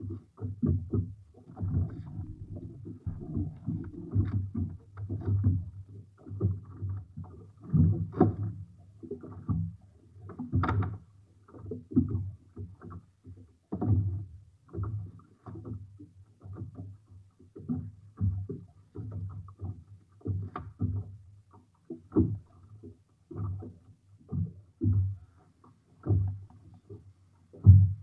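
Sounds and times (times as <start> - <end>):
water splashing against boat hull: 0.5 - 13.0, 16.4 - 28.0
wind buffeting microphone: 1.8 - 4.5.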